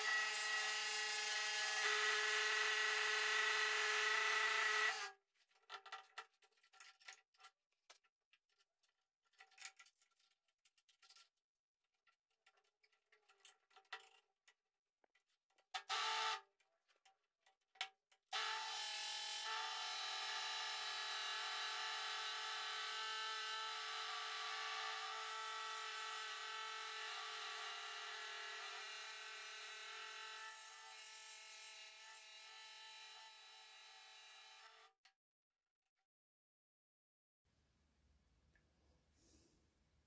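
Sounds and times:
scroll saw cutting wood: 0.0s - 5.2s, 15.8s - 16.4s, 18.3s - 35.0s.

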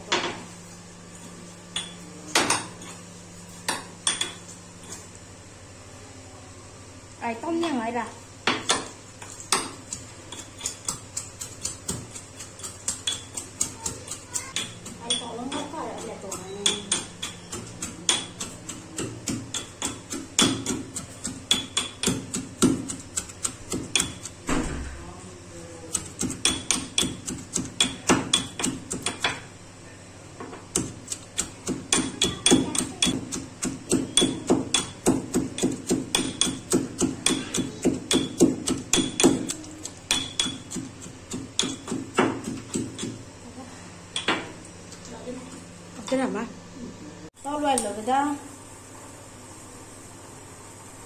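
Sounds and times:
steel pestle pounding in mortar: 9.5s - 24.5s, 25.9s - 29.5s, 30.7s - 43.3s.

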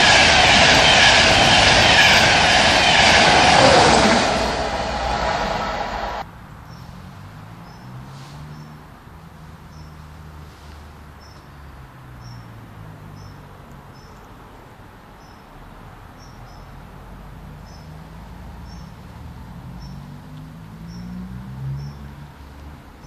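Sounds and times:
low engine rumble: 0.0s - 6.2s.

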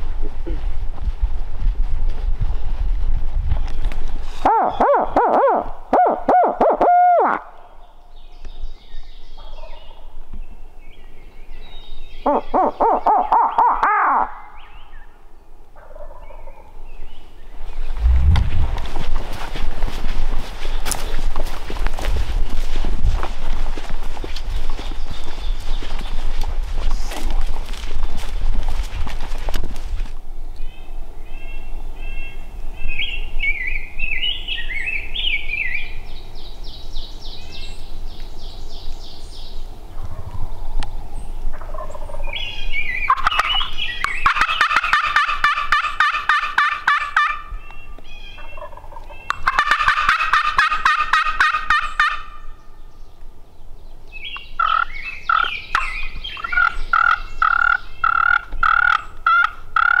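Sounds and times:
turkey yelping: 4.4s - 7.5s, 12.3s - 14.5s, 43.1s - 47.5s, 48.4s - 52.5s, 54.6s - 60.0s
turkey call notes: 4.4s - 7.7s, 41.5s - 47.6s, 48.2s - 52.6s, 54.4s - 60.0s
turkey gobbling: 4.5s - 7.4s, 12.3s - 14.4s, 15.8s - 16.6s, 41.5s - 42.4s, 43.1s - 47.5s, 48.4s - 52.4s, 54.6s - 60.0s.

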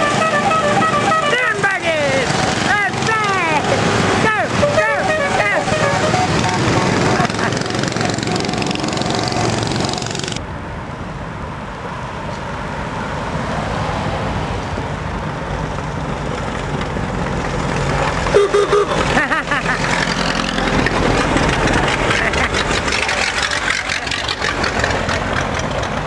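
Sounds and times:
horn tooting: 0.0s - 1.9s, 4.3s - 9.7s, 18.3s - 19.2s
street noise: 0.0s - 26.0s
miniature cars driving past: 5.9s - 10.4s, 15.5s - 26.0s.

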